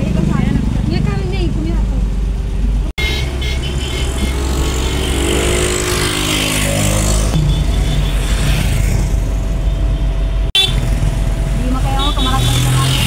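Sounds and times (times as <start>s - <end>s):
vehicle engines running: 0.0s - 13.0s
motorcycle riding past: 3.4s - 9.4s.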